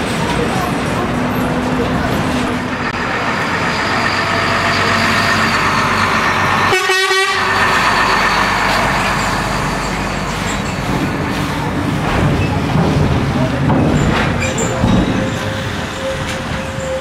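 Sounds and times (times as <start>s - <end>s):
lorry diesel engine passing: 0.3s - 12.0s
horn toot: 6.7s - 7.6s.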